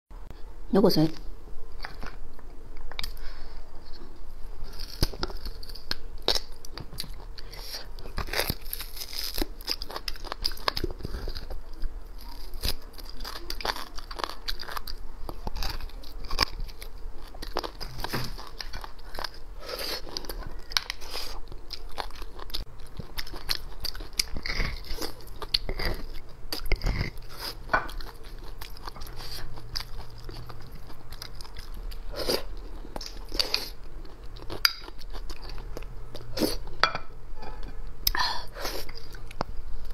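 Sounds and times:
chewing with wet crunches: 0:04.9 - 0:36.8.

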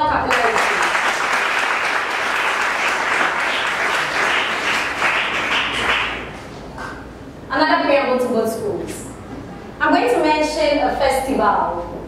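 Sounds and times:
audience applauding: 0:00.3 - 0:06.5.

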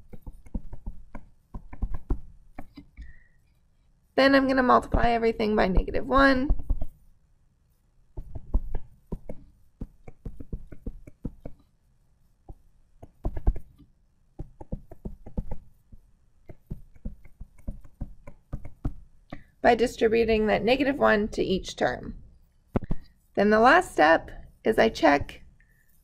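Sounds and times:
stylus tapping on tablet screen: 0:00.0 - 0:03.2, 0:04.8 - 0:07.0, 0:08.2 - 0:11.7, 0:12.5 - 0:19.6, 0:22.7 - 0:23.1.

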